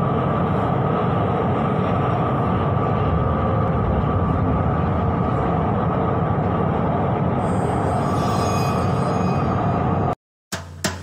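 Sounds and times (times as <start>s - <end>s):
train rumbling in a tunnel: 0.0s - 11.0s
high whine: 1.4s - 10.2s.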